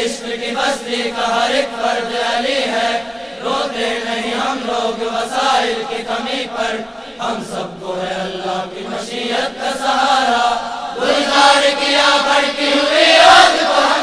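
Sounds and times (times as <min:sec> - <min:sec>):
male chorus singing unaccompanied: 0:00.0 - 0:14.0.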